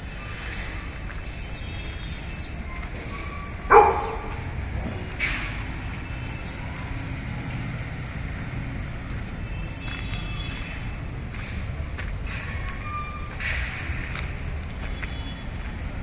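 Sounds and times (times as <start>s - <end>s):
dog barking: 3.6s - 4.5s.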